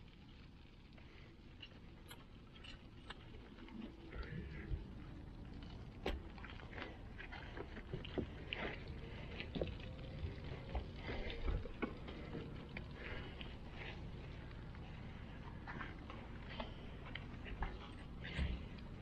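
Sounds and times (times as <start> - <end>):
soapy water sloshing and splashing: 0.9 - 19.0.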